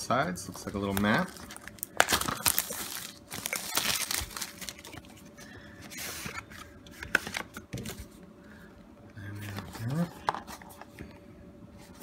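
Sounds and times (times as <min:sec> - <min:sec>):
plastic wrap crinkling and tearing: 0:00.5 - 0:05.3.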